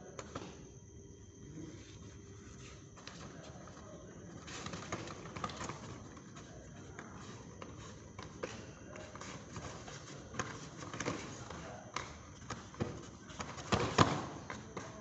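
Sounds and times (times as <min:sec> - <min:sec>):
low background noise: 0:00.0 - 0:15.0
footsteps and strikes on foam mats: 0:07.0 - 0:15.0.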